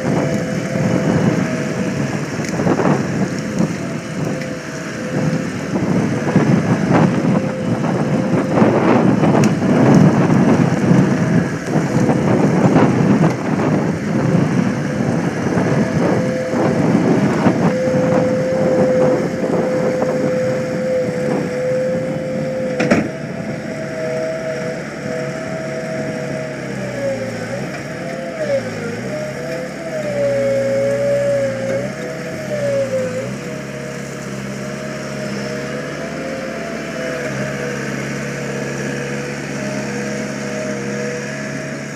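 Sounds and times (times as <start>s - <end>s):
skid steer loader engine whine: 0.0s - 41.9s
brush crackling and snapping: 2.3s - 4.6s.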